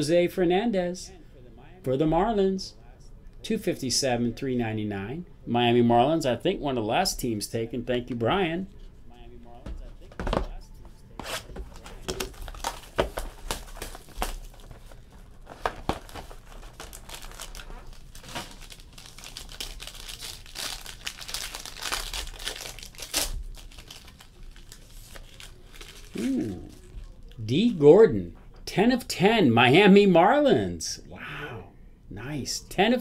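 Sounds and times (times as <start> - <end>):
plastic wrap crinkling and tearing: 11.2 - 27.4.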